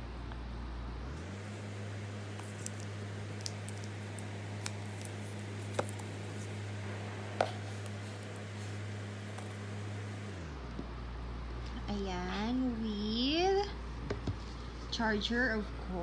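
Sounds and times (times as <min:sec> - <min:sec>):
steady low hum: 0:00.0 - 0:16.0
soft clicks of packaging handling: 0:02.4 - 0:06.5.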